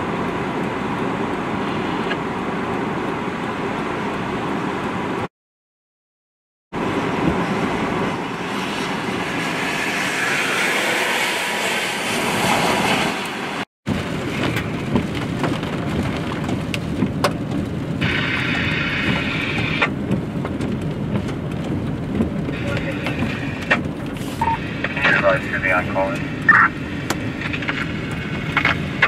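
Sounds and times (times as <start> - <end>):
road noise inside a car: 0.0 - 5.3, 6.8 - 29.0
wind and rain rushing: 0.0 - 5.3, 6.7 - 29.0
truck passing on wet road: 6.8 - 29.0
raindrops tapping on windshield: 13.9 - 29.0.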